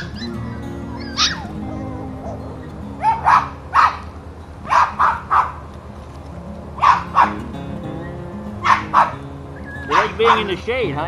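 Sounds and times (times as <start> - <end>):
puppy barking: 0.0 - 4.1, 4.7 - 5.6, 6.8 - 7.4, 8.6 - 10.5.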